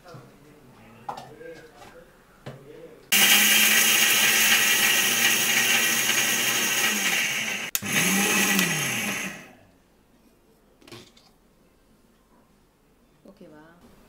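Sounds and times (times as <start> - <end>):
mixer grinder grinding spices: 3.1 - 9.6.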